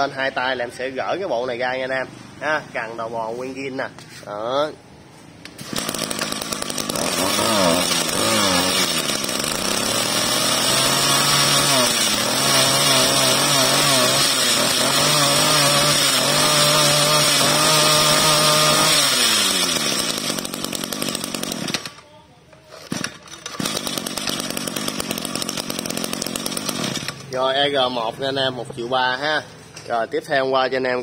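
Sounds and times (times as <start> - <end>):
brush cutter engine revving: 5.4 - 22.0, 22.7 - 27.7.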